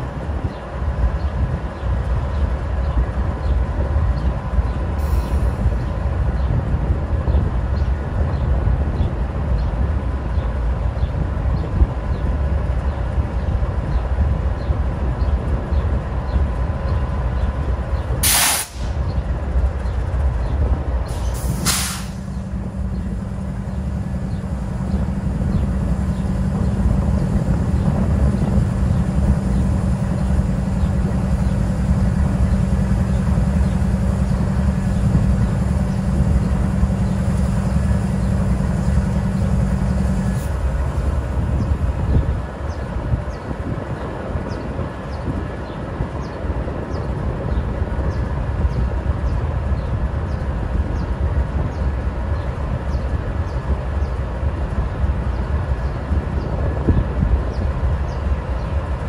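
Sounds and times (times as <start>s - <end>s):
diesel locomotive idling: 0.0s - 59.0s
air hisses: 18.2s - 18.9s, 21.1s - 22.3s.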